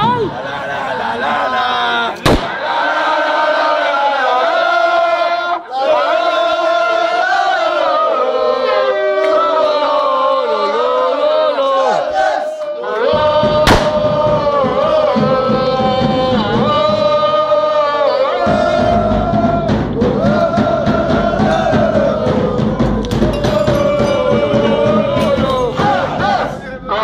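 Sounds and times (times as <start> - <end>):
crowd singing a chant: 0.0 - 27.0
bass drum beating: 13.1 - 17.6, 18.4 - 26.6
sharp knock: 13.5 - 14.4.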